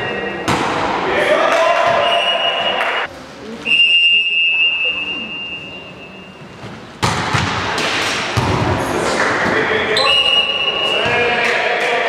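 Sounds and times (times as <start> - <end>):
referee's whistle blast: 2.0 - 3.0, 10.0 - 11.2.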